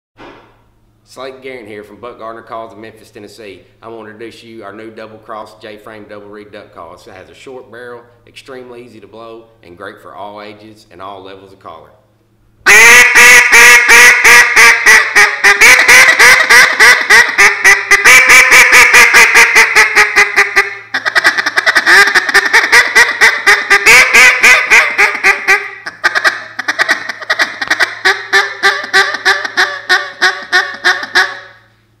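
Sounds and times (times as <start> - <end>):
duck call quacks: 12.7 - 31.7.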